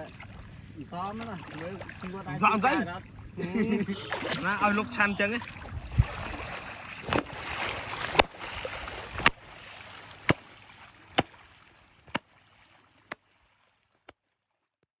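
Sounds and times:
water splashing: 0:00.0 - 0:14.4
wet cloth smacking water: 0:05.4 - 0:13.3.

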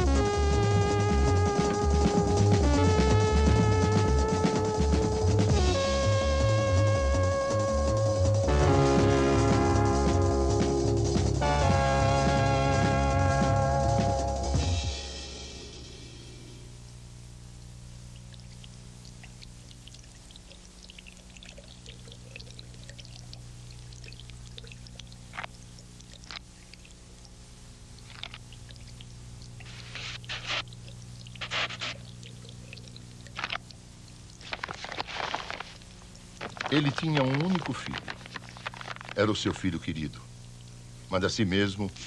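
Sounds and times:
steady low hum: 0:00.0 - 0:42.0
parchment rustling: 0:29.6 - 0:32.4, 0:34.4 - 0:39.8
pen scratching on parchment: 0:31.4 - 0:32.0.

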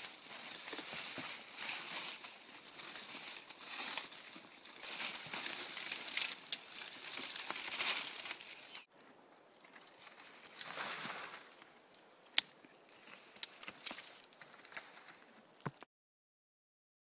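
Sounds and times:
dry palm fronds rustling: 0:00.0 - 0:08.9, 0:09.8 - 0:11.7, 0:12.4 - 0:15.2.

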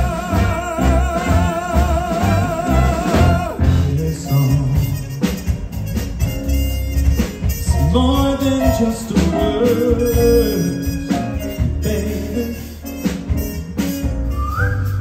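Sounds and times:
man singing into a microphone: 0:00.0 - 0:05.2, 0:07.6 - 0:13.0
backing band with drum beat: 0:00.0 - 0:15.0.

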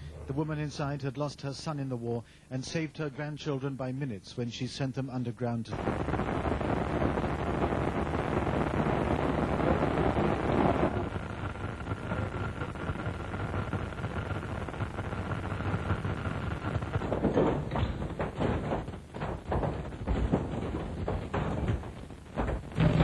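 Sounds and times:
fire roaring: 0:05.7 - 0:23.0.

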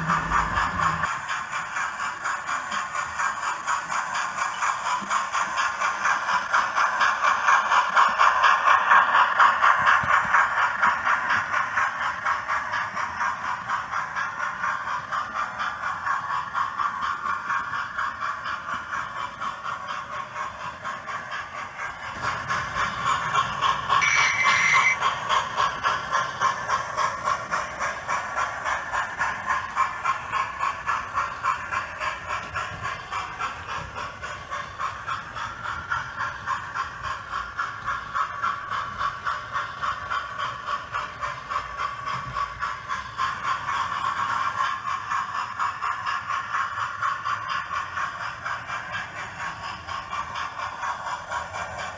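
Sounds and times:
model train running on track: 0:00.0 - 0:51.9.

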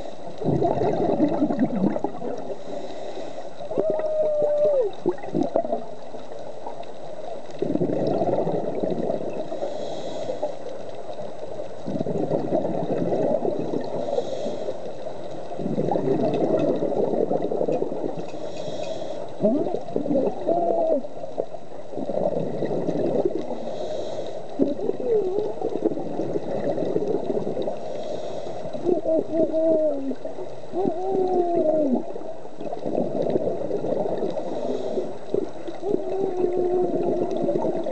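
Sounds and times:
regulator hiss on inhale: 0:00.0 - 0:00.4, 0:02.4 - 0:03.7, 0:09.3 - 0:11.2, 0:13.7 - 0:15.6, 0:18.1 - 0:19.4, 0:23.3 - 0:25.0, 0:27.2 - 0:28.9, 0:34.1 - 0:35.7
bubbling exhale underwater: 0:00.0 - 0:02.6, 0:03.7 - 0:06.1, 0:07.6 - 0:09.8, 0:11.8 - 0:14.3, 0:15.5 - 0:23.9, 0:24.6 - 0:28.0, 0:28.6 - 0:37.9.

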